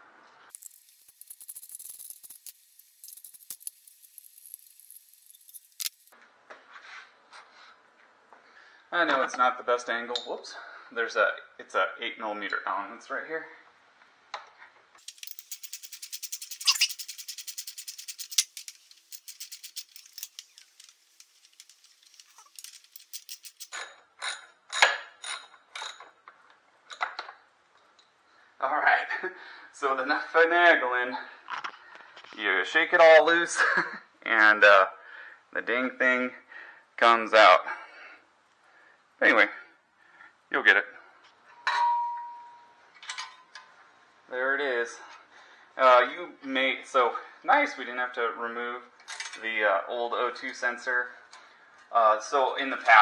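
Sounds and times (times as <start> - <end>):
sharp metallic clinks and knocks: 0.5 - 6.2, 15.0 - 26.2
hand ratchet clicking: 15.0 - 23.8.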